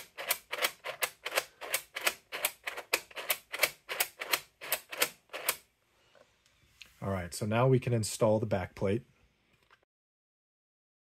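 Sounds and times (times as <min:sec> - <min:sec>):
plastic counter clicking: 0:00.0 - 0:05.7.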